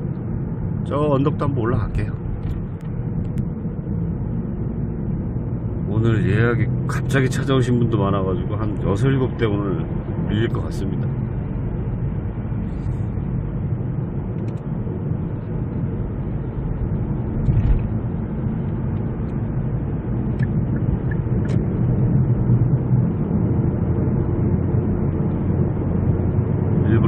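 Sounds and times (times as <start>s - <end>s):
car cabin hum of tyres: 0.0s - 27.0s
low thump: 17.4s - 18.0s.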